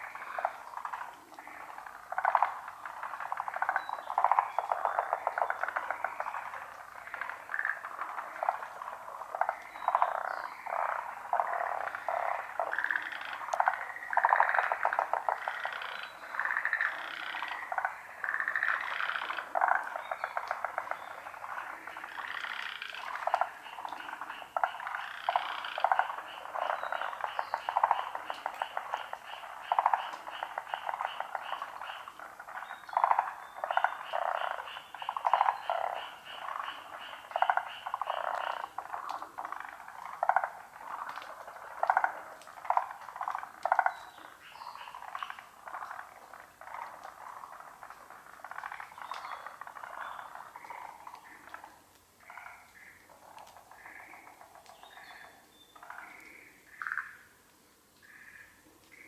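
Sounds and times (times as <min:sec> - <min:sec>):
frogs trilling: 0:00.0 - 0:57.4, 0:58.0 - 0:59.0
frogs croaking: 0:00.0 - 0:59.0.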